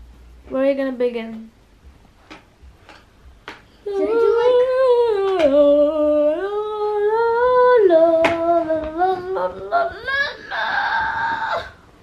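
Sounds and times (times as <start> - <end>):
child humming a tune: 3.8 - 11.8.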